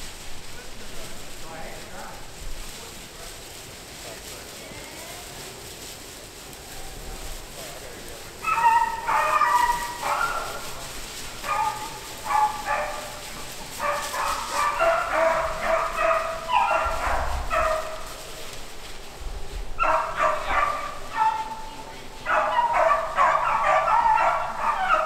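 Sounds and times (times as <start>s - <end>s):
dogs baying: 8.2s - 18.9s, 19.5s - 25.0s.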